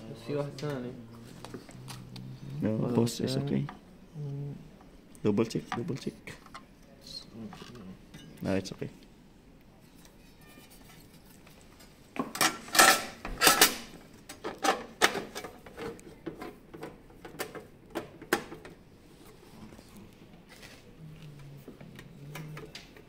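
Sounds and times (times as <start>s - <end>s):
metal cover and tools clattering: 12.2s - 17.6s.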